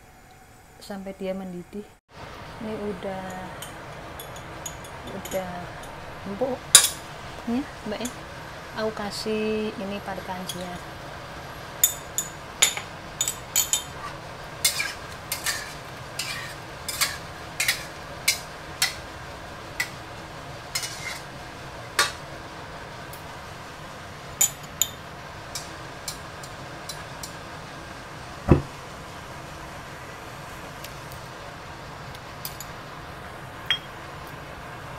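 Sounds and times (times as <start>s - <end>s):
metal spatula scraping wok: 13.8s - 19.0s, 20.7s - 21.3s
heavy knock on wok: 28.5s - 28.8s.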